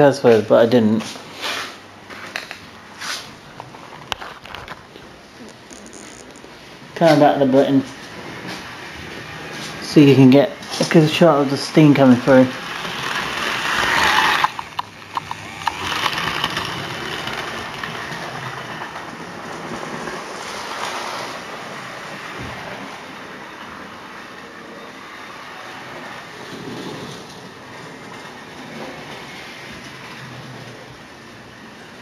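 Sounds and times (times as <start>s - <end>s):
wheels clicking over rail joints: 0.0s - 32.0s
model train motor whirring: 8.0s - 32.0s.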